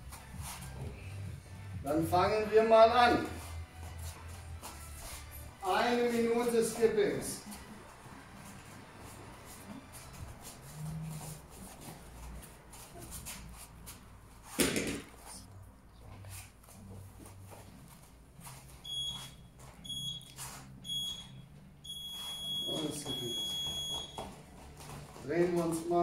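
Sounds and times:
short high timer beeps: 18.9s - 24.2s.

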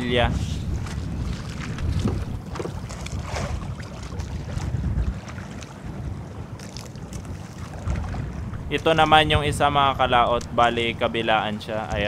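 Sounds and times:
water sloshing against boat hull: 0.0s - 9.3s
wind buffeting microphone: 0.0s - 12.0s.

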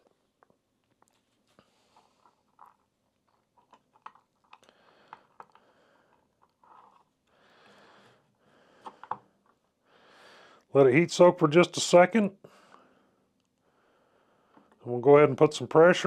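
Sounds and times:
soft rustle: 0.1s - 4.6s, 6.3s - 7.3s
faint clicks and taps: 0.4s - 7.4s, 8.8s - 9.6s, 14.5s - 14.8s.

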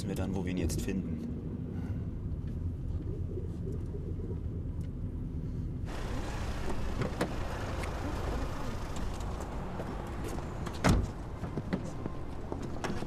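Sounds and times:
street noise: 0.9s - 13.0s
car cabin rumble: 5.9s - 13.0s.

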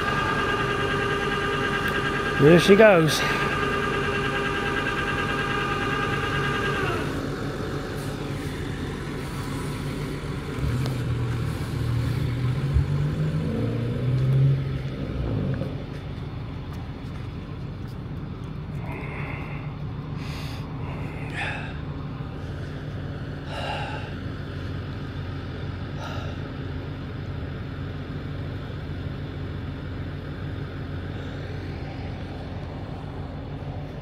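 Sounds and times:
winch whining: 0.0s - 10.5s
deep engine rumble: 0.0s - 34.0s.

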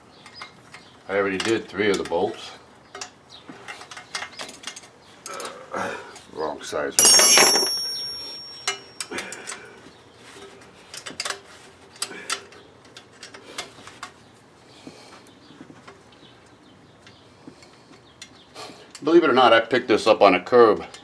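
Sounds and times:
hand tools clinking: 7.0s - 9.0s.

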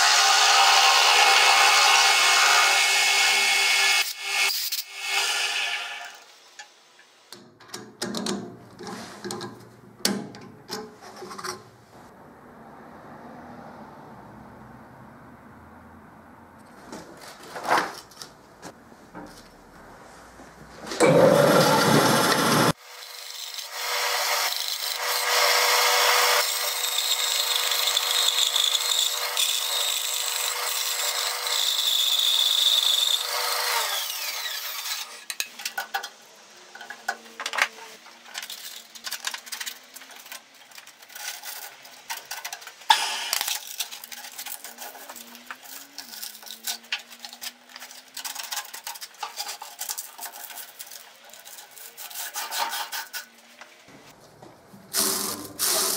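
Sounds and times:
bandsaw cutting wood: 0.0s - 6.3s, 21.0s - 35.3s, 54.9s - 55.9s.

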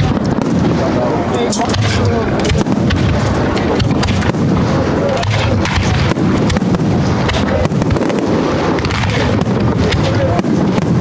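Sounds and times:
fireworks bangs and crackling: 0.0s - 11.0s.

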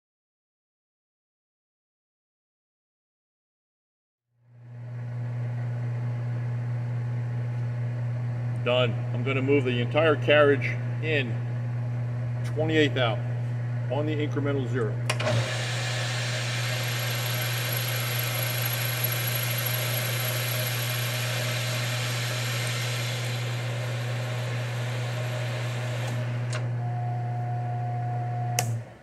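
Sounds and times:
lathe humming: 14.9s - 28.9s
tool cutting metal hissing: 15.3s - 26.0s
click: 26.1s - 26.7s, 28.5s - 28.8s.

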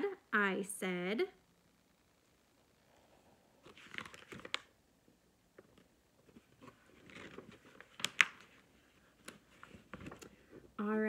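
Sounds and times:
paper pages rustling: 3.6s - 4.7s, 5.6s - 10.6s
page snapping: 7.1s - 8.5s.

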